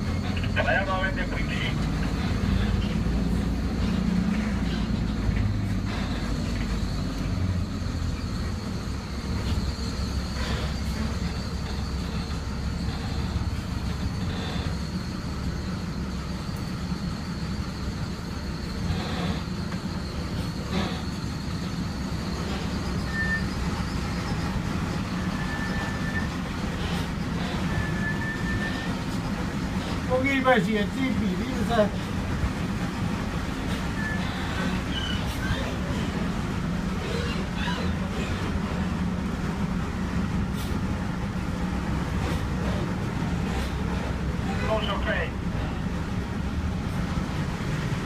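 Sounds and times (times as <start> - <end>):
bus diesel engine rumbling: 0.0 - 48.0
short high squeaks: 2.1 - 7.2, 7.8 - 30.1, 33.6 - 36.2, 36.9 - 38.6.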